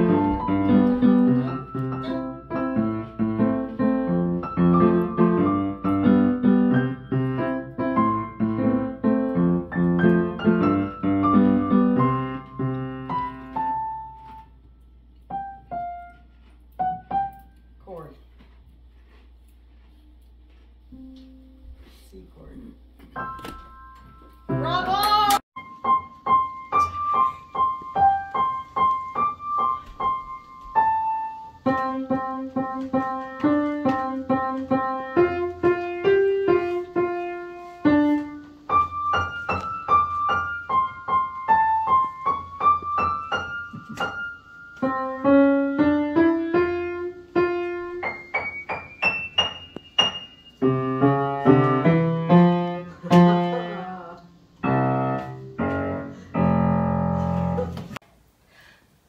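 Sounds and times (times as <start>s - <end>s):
upright piano piece: 0.0s - 17.6s, 22.8s - 58.0s.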